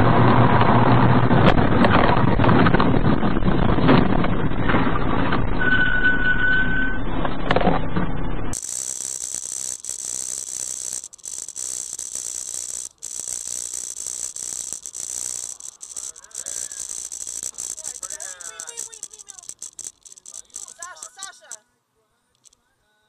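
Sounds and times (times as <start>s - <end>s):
wind and road noise: 0.0s - 5.6s
steady high hiss: 8.6s - 21.6s.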